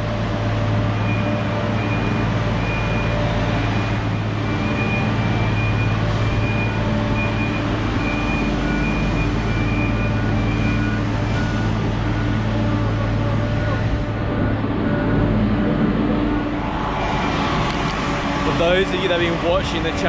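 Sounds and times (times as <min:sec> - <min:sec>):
low engine hum: 0:00.0 - 0:20.0
high warning beeps: 0:01.0 - 0:12.5.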